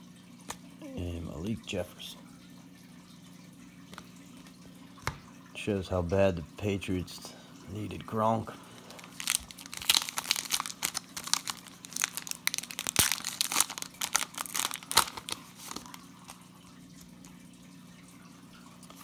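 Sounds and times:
foil wrapper tearing and crinkling: 8.8s - 16.4s.

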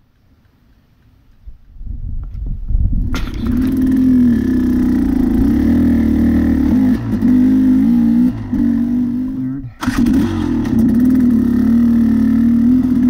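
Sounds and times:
dirt bike engine revving: 3.0s - 13.0s.

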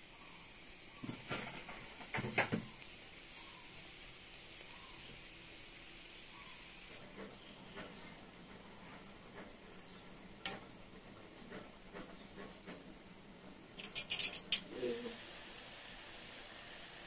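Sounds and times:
oil sizzling: 0.0s - 17.0s
metal tongs clicking on pan: 13.8s - 14.7s.

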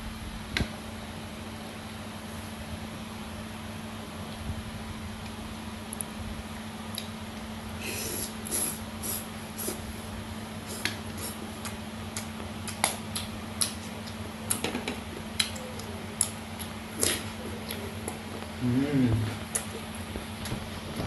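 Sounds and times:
low hum: 0.0s - 21.0s
person chewing: 7.8s - 9.9s, 10.6s - 18.6s, 19.3s - 20.6s.

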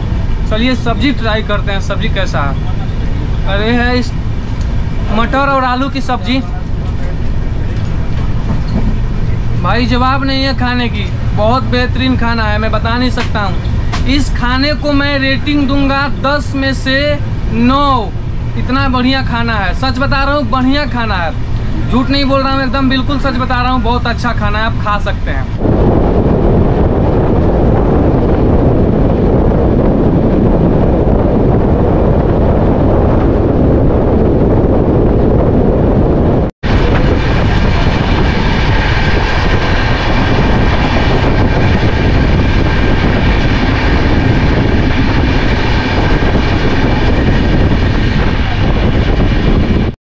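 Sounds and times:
steady high whine: 0.0s - 50.0s
train rumbling on track: 0.0s - 50.0s
wind rushing over microphone: 0.0s - 50.0s.

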